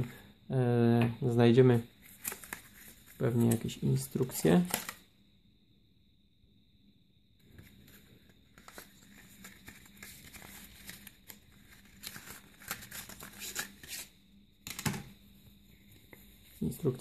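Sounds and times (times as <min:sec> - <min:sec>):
paper envelope rustling: 0:02.0 - 0:05.0, 0:07.5 - 0:14.1.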